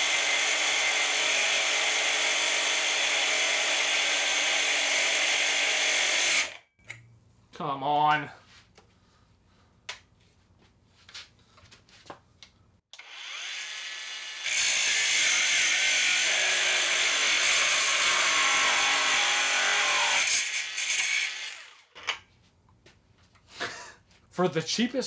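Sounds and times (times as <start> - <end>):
angle grinder cutting steel: 0.0 - 6.7, 12.9 - 21.9.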